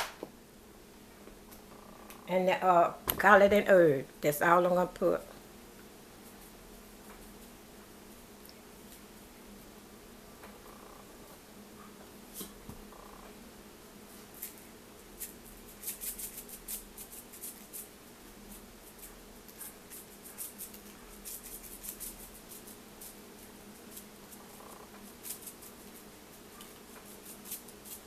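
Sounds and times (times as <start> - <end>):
faint steady hum: 0.0 - 28.0
spice shaker rattling: 14.4 - 28.0.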